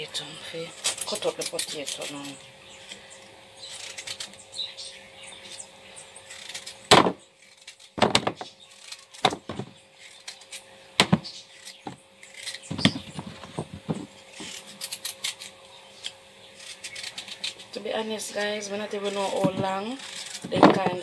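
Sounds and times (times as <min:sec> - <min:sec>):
knife cutting potatoes: 0:19.1 - 0:21.0.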